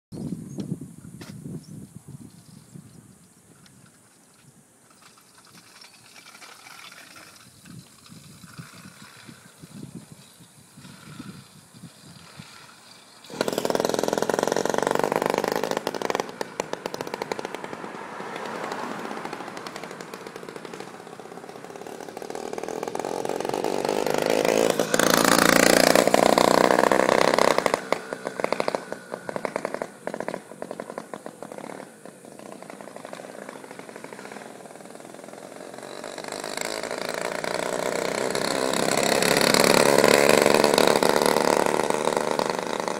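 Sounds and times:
small engine running: 10.8 - 17.8, 19.2 - 42.9.

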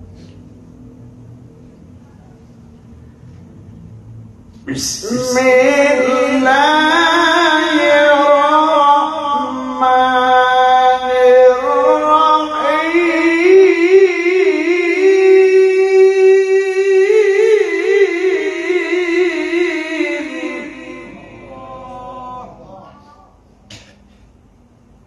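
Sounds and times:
person reciting melodically: 4.6 - 23.4.

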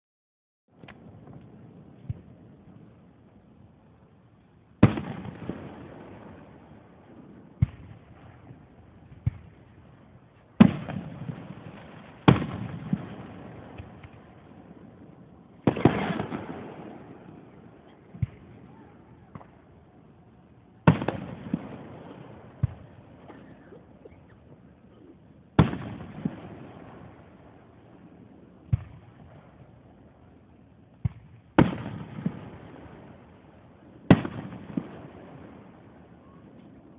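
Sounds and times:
small firework pops: 0.8 - 2.4, 7.6 - 9.6, 10.3 - 14.3, 15.6 - 16.9, 17.8 - 19.7, 20.8 - 24.6, 28.7 - 29.4, 31.0 - 32.6
firework shells booming: 4.8 - 9.6, 10.6 - 14.3, 15.6 - 19.7, 20.8 - 24.6, 25.5 - 27.2, 31.0 - 33.2, 34.0 - 35.7
rolling echo: 4.8 - 36.9.

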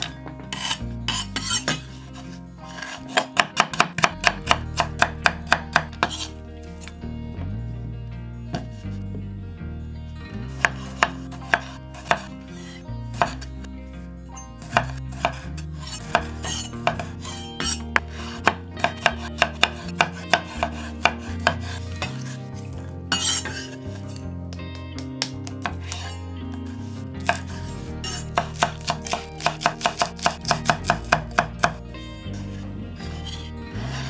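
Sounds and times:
knife chopping on cutting board: 10.6 - 12.3, 16.1 - 22.2, 27.2 - 31.8.

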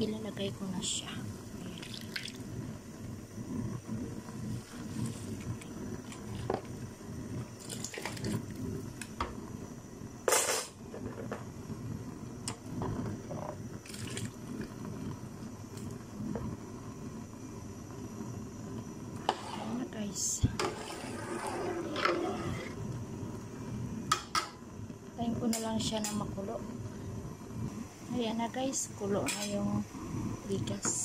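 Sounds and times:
water splashing and bubbling: 1.6 - 2.5, 13.8 - 14.4
rice tipped into boiling water: 7.6 - 8.5, 13.8 - 14.4
colander knocking against pot: 24.1 - 24.6.

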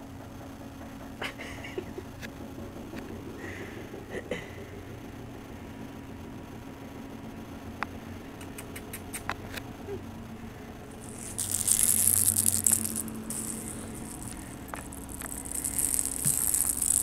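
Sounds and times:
rattle toy ball rattling: 11.0 - 17.0.

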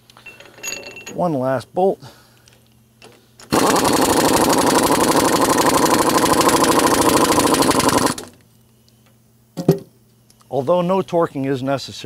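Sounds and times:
pneumatic impact wrench rattling: 3.5 - 8.4.

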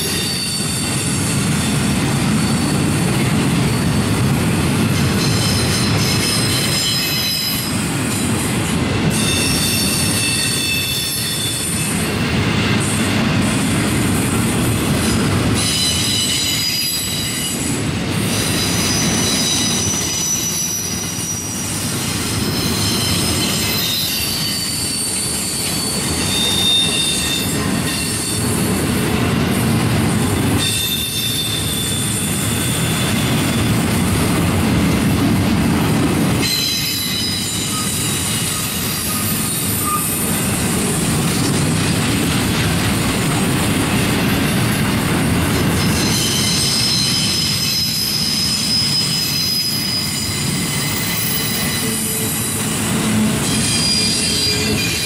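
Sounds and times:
high wheel squeals: 0.0 - 4.1, 5.1 - 7.8, 9.1 - 12.0, 15.6 - 28.5, 30.6 - 33.8, 36.4 - 40.5, 45.8 - 55.0
steel wheels rumbling on rail: 0.0 - 55.0.

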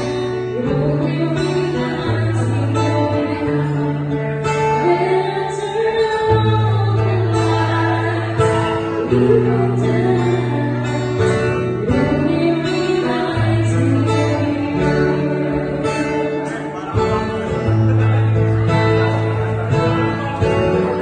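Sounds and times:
woman singing: 0.0 - 16.7
acoustic guitar: 0.0 - 21.0.

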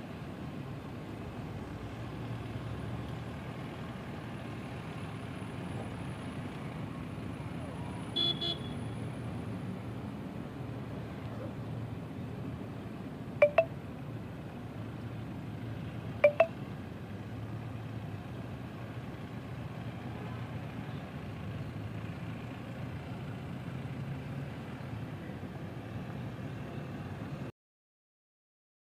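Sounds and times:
vehicle engines rumbling: 0.0 - 27.5
double beep: 13.4 - 13.7, 16.2 - 16.5.

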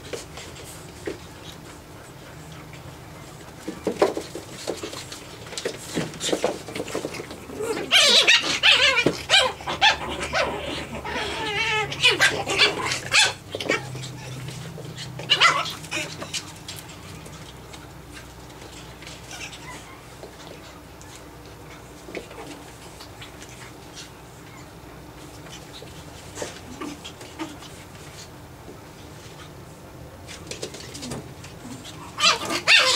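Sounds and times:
puppies yipping and barking: 6.4 - 27.8, 30.5 - 32.9.

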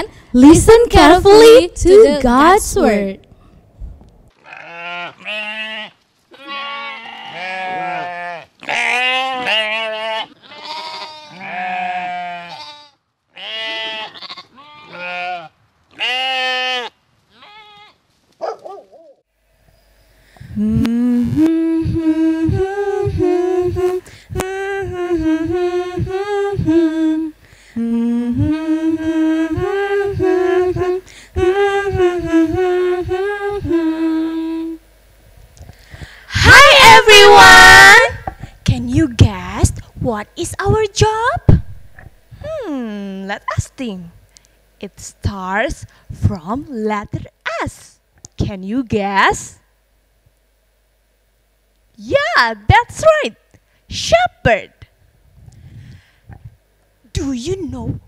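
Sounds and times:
sheep bleating: 4.4 - 18.0
stepping pitched tones with clicks: 20.4 - 27.2.

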